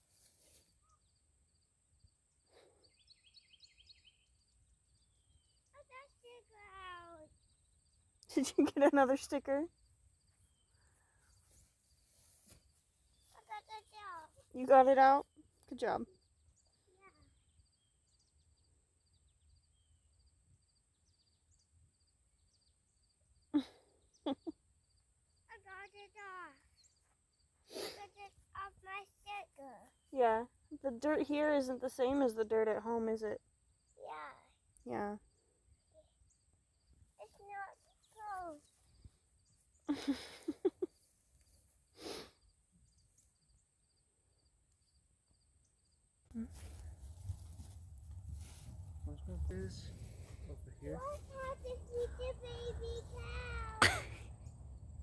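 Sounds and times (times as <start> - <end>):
insects chirping: 0.4 - 30.2, 31.2 - 47.2.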